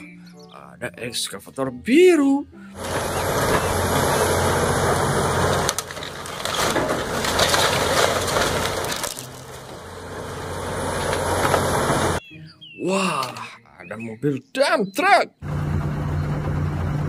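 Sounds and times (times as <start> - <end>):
diesel engine hum: 2.5 - 12.3, 15.4 - 17.0
timber cracking and splintering: 2.8 - 12.2.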